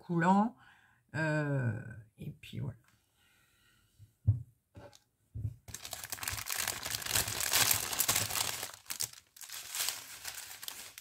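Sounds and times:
plastic bags crinkling: 5.7 - 11.0.

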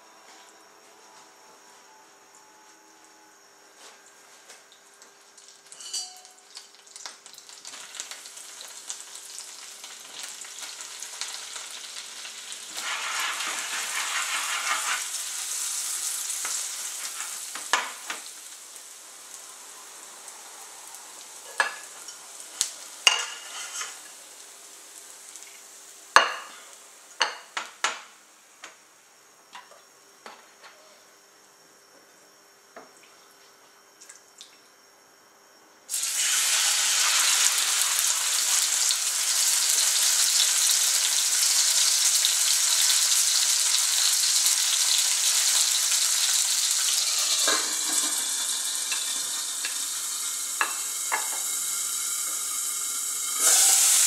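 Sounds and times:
butter and oil sizzling: 5.2 - 27.6, 35.9 - 54.0.

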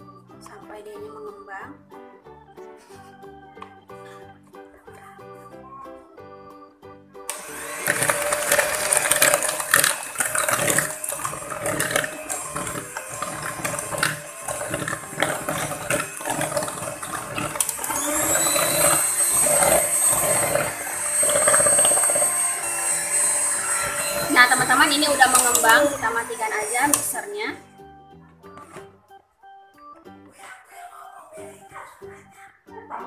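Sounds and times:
background music: 0.0 - 33.0
beaters clicking and rattling in bowl: 7.3 - 27.4
electric hand mixer whisking: 7.3 - 27.6.

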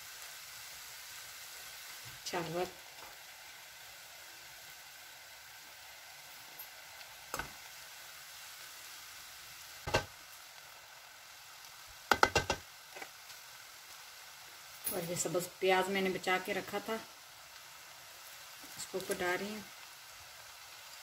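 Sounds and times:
food sizzling in a pan: 0.0 - 21.0
spoon knocking against pan: 9.9 - 10.1, 12.1 - 12.6.

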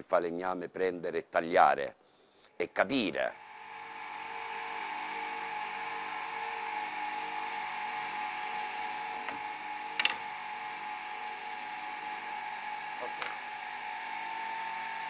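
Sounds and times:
machine hum with high whine: 3.2 - 15.0.

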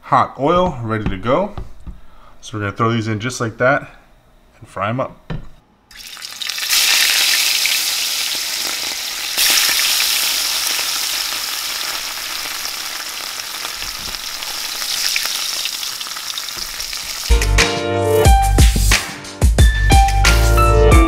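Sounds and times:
fish frying in hot oil: 5.9 - 17.3
music: 17.3 - 21.0.

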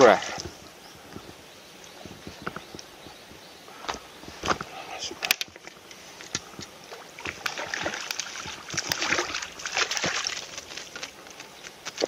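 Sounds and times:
water splashing: 5.1 - 12.0.

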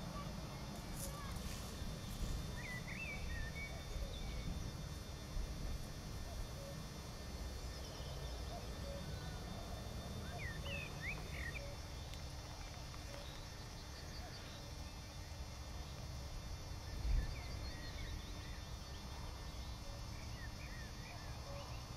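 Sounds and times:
faint rapid bird trills: 0.0 - 5.0, 5.7 - 15.5.

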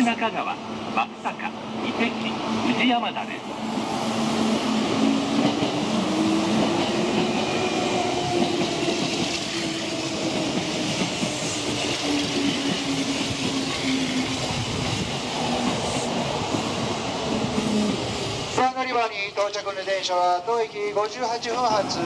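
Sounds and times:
train rumble: 0.0 - 22.0
train wheels clattering on rails: 4.4 - 18.3.

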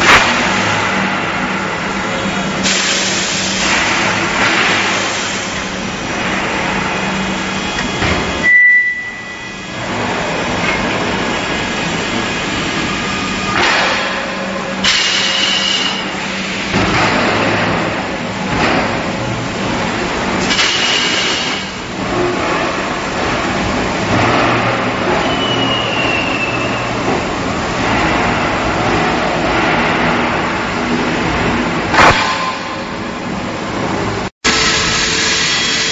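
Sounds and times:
machinery humming: 0.0 - 35.9
short high whistle: 8.4 - 9.6, 25.2 - 26.8.

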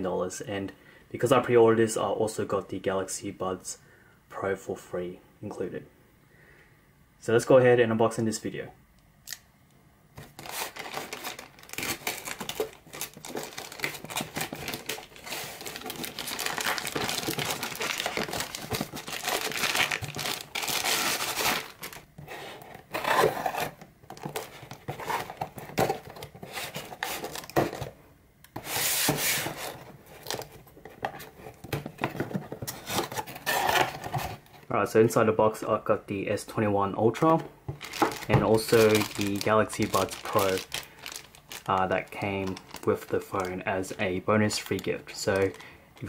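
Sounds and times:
plastic satchel crinkling and tearing: 10.2 - 22.1, 37.7 - 46.0.

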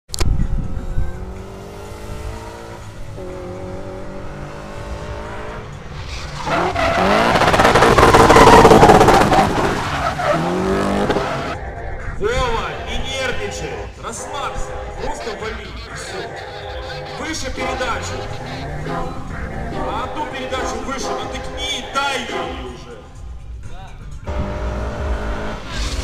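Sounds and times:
car engine revving: 0.4 - 11.8, 13.5 - 23.4, 24.1 - 26.0
tyres squealing and skidding: 5.2 - 23.2, 25.4 - 26.0.

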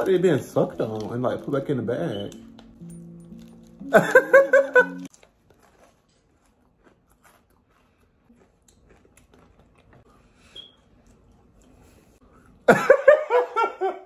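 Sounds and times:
chips crunching while chewed: 0.0 - 4.1, 4.7 - 10.2.

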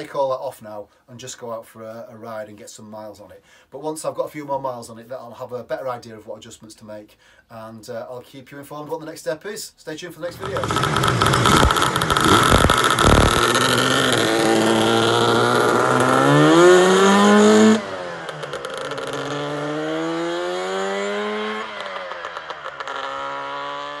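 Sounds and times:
scooter engine revving: 10.3 - 24.0
scooter riding by: 10.3 - 24.0.

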